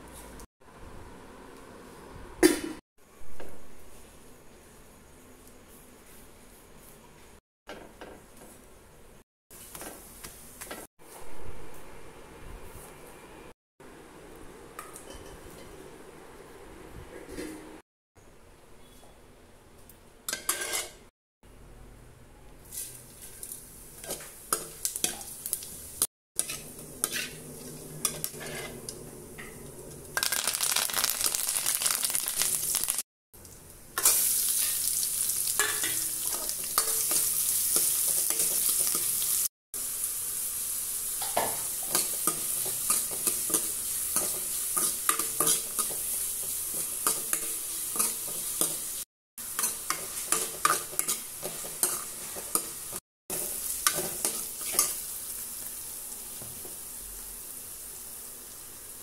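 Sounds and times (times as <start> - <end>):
onions sizzling in hot oil: 22.7 - 59.0.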